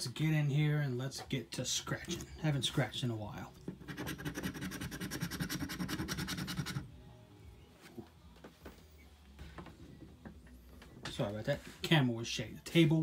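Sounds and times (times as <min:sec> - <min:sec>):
coin scraping scratch-off ticket: 0:03.8 - 0:06.8.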